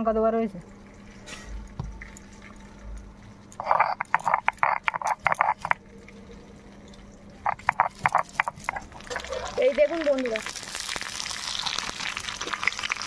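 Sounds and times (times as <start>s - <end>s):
frog croaking: 3.6s - 5.8s, 7.4s - 9.6s.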